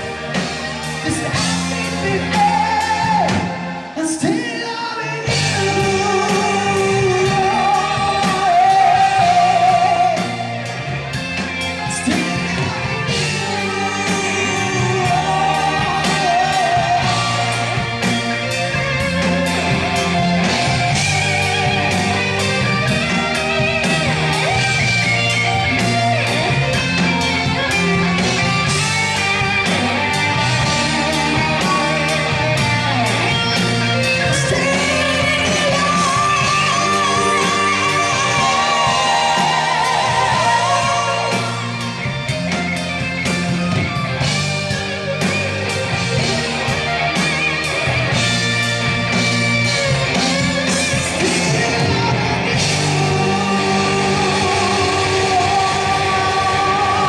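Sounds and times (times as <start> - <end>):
bass guitar: 0.0 - 57.0
drums and cymbals: 0.0 - 57.0
guitar: 0.0 - 57.0
male singer: 1.0 - 10.7, 11.8 - 18.8, 30.6 - 41.9, 50.6 - 57.0.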